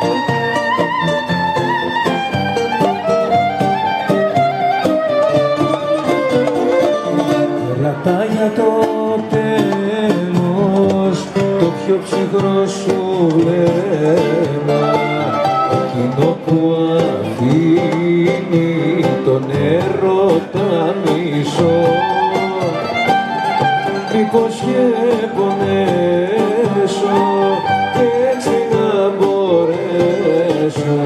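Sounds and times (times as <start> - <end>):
folk band playing: 0.0 - 31.0
hand drum: 0.0 - 31.0
man singing: 7.2 - 31.0.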